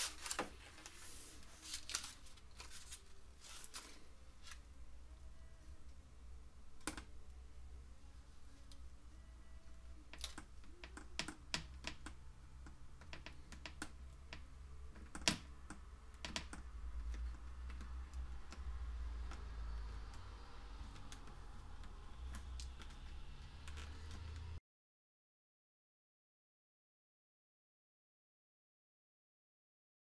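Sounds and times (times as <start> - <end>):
soft rubbing hiss: 0.0 - 4.7.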